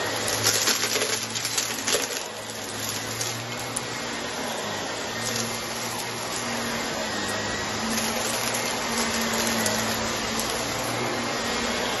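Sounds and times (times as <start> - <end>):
crumbs crackling up vacuum: 0.0 - 12.0
vacuum cleaner running: 0.0 - 12.0.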